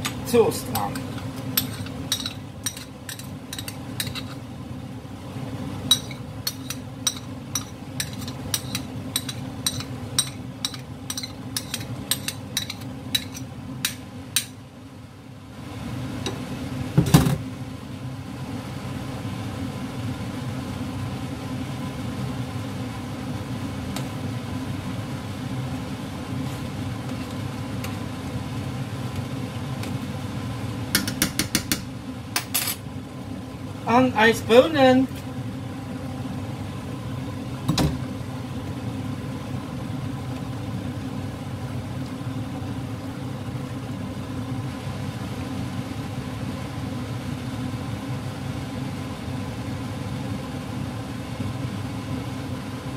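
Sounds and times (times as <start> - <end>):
spoon tapping pot rim: 1.0 - 4.3, 5.9 - 14.5
spoon clinking ceramic bowl: 5.9 - 13.4
spoon knocking pot: 5.9 - 14.5, 30.9 - 32.5.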